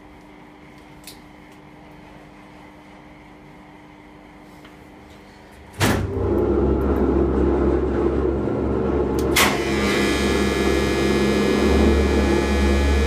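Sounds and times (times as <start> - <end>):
crane machinery humming and rumbling: 4.9 - 13.0.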